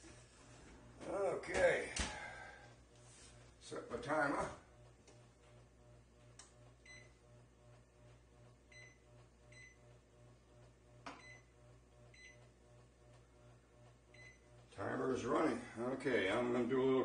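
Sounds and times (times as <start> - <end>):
microwave keypad beeps: 6.8 - 7.2, 8.7 - 9.8, 11.2 - 11.5, 12.1 - 12.4, 14.1 - 14.4.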